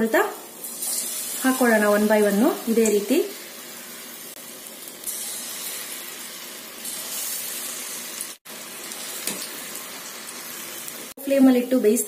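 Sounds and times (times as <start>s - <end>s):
hot oil sizzling: 0.0s - 12.0s.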